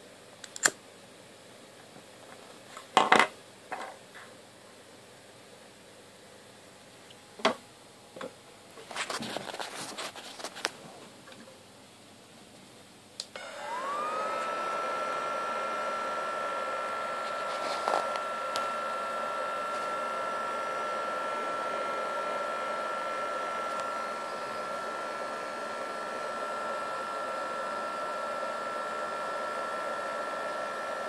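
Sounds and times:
fan whine: 13.2 - 31.0.

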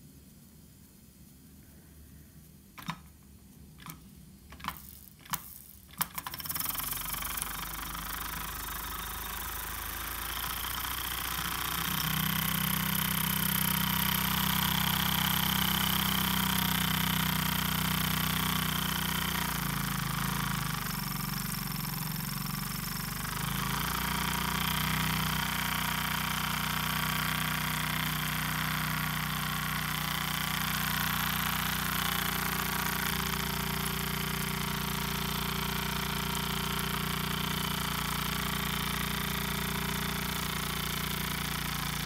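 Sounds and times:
sharp clicks: 2.8 - 12.2
model steam engine running: 4.6 - 42.0.

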